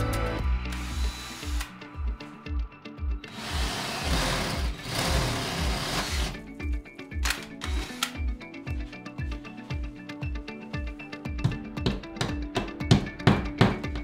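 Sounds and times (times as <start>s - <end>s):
background music with steady beat: 0.0s - 14.0s
drill drilling into ceramic tile: 0.7s - 1.7s, 3.3s - 6.4s.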